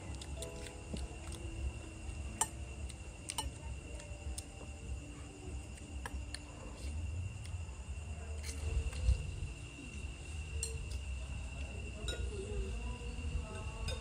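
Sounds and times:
steady high whine: 0.0s - 14.0s
spoons clinking against bowls: 3.3s - 3.6s.

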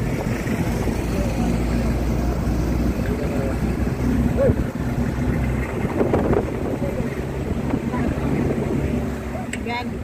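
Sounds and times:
low engine drone: 0.0s - 10.0s
road noise: 0.0s - 10.0s
wind noise: 4.2s - 9.2s.

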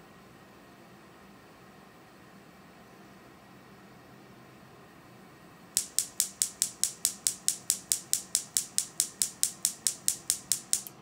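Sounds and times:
spark igniter clicking: 5.8s - 11.0s.

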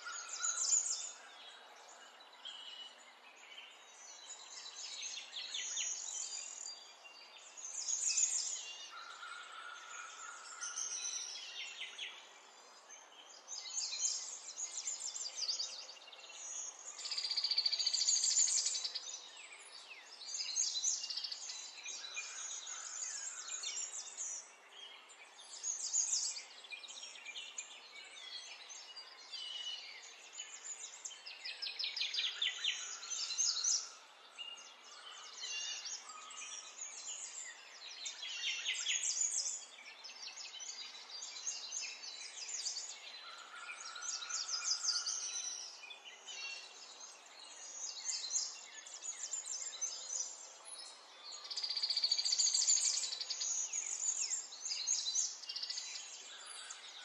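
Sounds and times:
songbird trilling and chirping: 25.5s - 57.0s.

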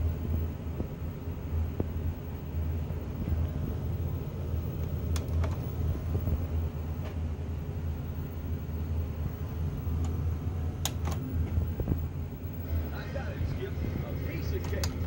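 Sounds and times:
vcr mechanical hum: 0.0s - 15.0s
vcr clicks: 4.7s - 6.1s, 9.9s - 11.6s, 14.3s - 15.0s.

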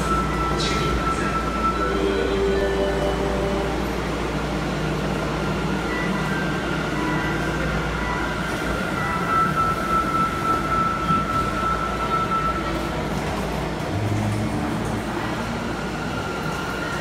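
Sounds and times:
train equipment humming: 0.0s - 17.0s.

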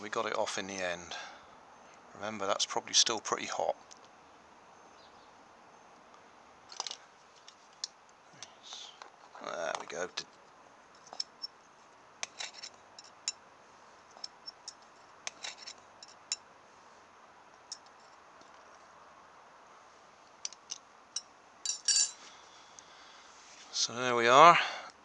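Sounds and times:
metallic clicks and clinks: 17.7s - 18.1s, 20.4s - 22.2s
ringing metal clink: 21.2s - 22.2s.

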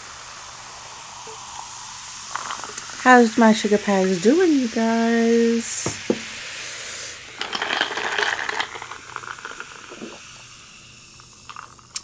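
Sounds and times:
soda fizzing in a glass jar: 0.0s - 12.0s
straw stirring drink: 2.3s - 3.0s, 7.3s - 10.2s, 11.5s - 12.0s
quick clinks and rattles: 7.3s - 10.1s.

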